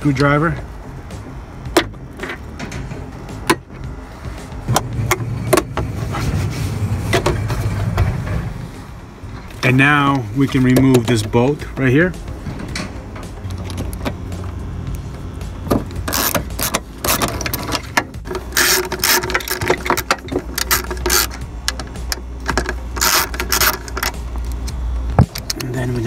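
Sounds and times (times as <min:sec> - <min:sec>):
steady low rumble: 0:00.0 - 0:26.0
socket ratchet clicking: 0:16.0 - 0:25.6.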